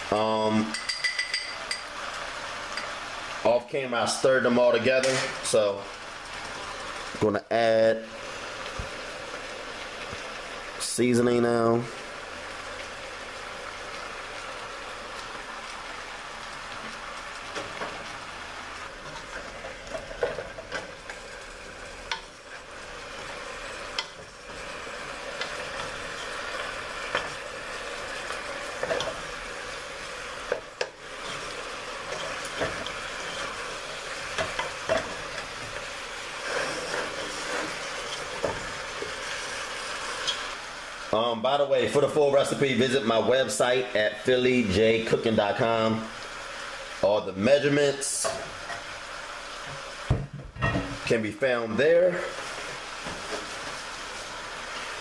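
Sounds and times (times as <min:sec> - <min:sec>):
meat sizzling in oil: 0:00.0 - 0:55.0
wooden spoon scraping pot: 0:36.4 - 0:39.2.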